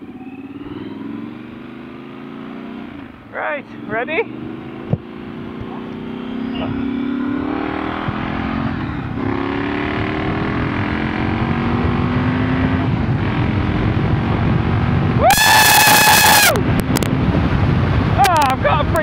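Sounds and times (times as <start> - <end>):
motorcycle engine accelerating: 0.0 - 19.0
wind rush: 6.5 - 19.0
rider shouting: 15.2 - 16.6.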